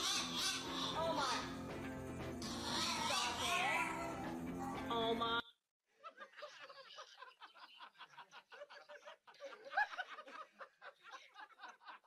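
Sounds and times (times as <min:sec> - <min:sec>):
stuttering snicker laugh: 0:06.0 - 0:12.0.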